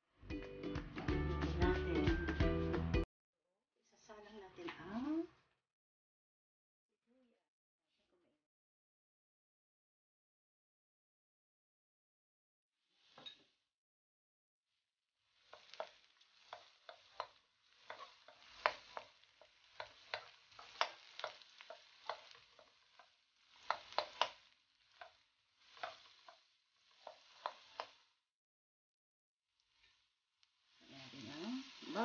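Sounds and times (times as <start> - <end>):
onion sizzling in oil: 15.2 - 28.3, 29.6 - 32.0
spatula tapping and scraping a wok: 15.4 - 28.1, 30.8 - 32.0.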